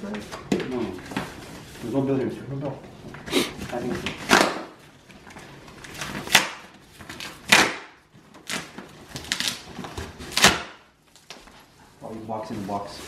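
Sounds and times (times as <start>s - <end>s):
packing tape ripping off cardboard: 3.3s - 11.6s.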